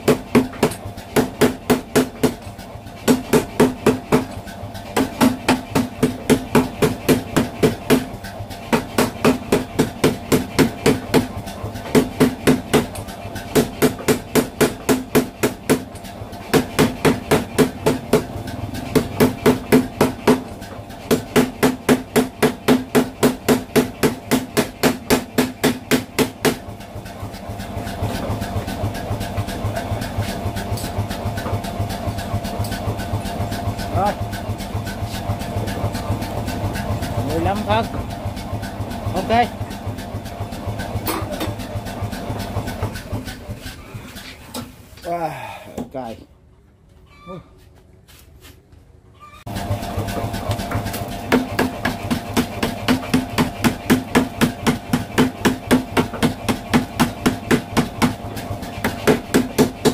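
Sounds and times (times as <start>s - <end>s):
power hammer pounding steel: 0.0s - 43.6s, 49.5s - 59.9s
machine humming: 49.5s - 59.9s.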